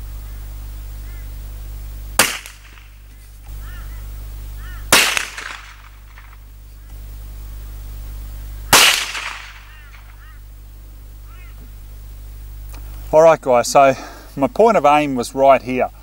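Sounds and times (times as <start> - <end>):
faint bird chirps: 1.0 - 1.4, 3.6 - 4.9, 9.6 - 10.5, 11.2 - 11.7
rifle shot with echo: 2.2 - 2.9, 4.9 - 6.0, 8.7 - 10.1.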